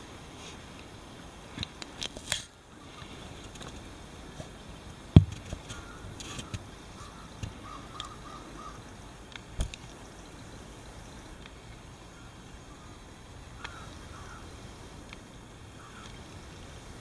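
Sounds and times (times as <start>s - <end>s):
low steady hiss: 0.0s - 17.0s.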